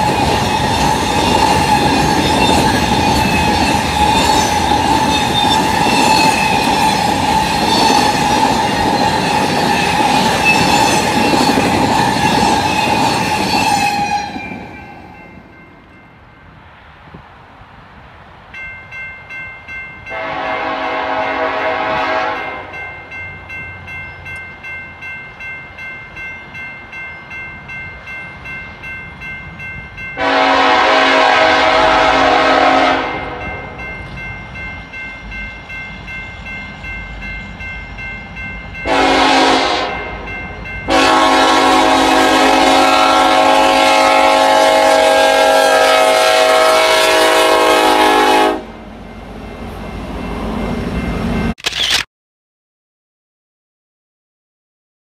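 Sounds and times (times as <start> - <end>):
locomotive air horn blasts: 20.1 - 22.8, 30.2 - 33.8, 38.8 - 40.2, 40.9 - 48.8.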